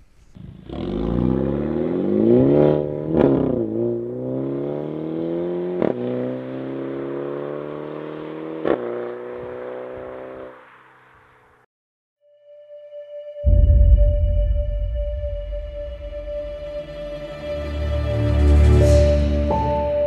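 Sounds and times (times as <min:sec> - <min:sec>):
car accelerating hard: 0:00.4 - 0:11.4.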